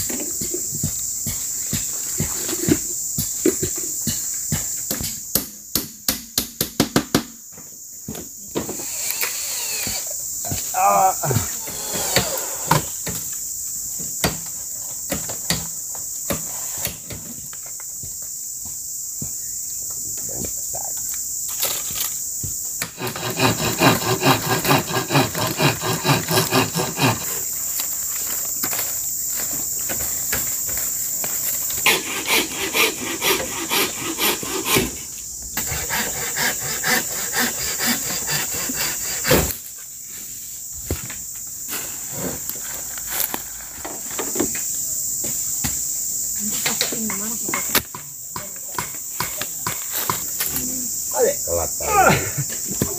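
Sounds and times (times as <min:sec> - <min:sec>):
insects buzzing: 0:00.0 - 0:52.9
hand sawing wood: 0:22.9 - 0:27.5, 0:31.7 - 0:39.6.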